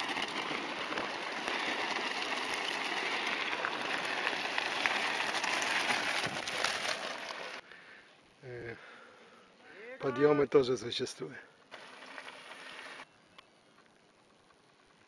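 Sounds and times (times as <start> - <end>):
bike tyres crunching on gravel: 0.0 - 8.0, 11.7 - 13.1.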